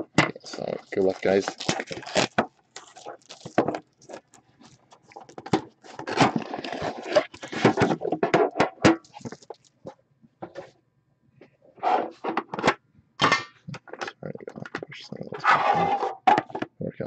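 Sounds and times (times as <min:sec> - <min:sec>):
plastic shrink wrap crinkling: 0:00.5 - 0:08.1, 0:09.0 - 0:09.9
cardboard box opening: 0:01.2 - 0:08.2.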